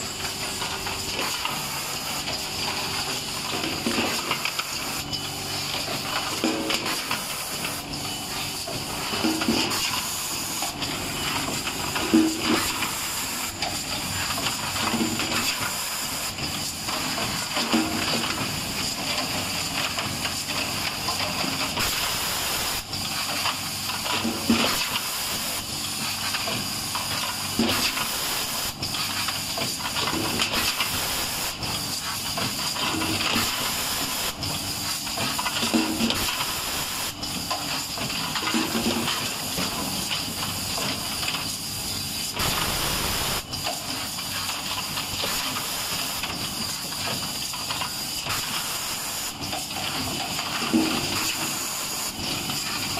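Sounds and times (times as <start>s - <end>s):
steady air hiss: 41.4s - 50.0s.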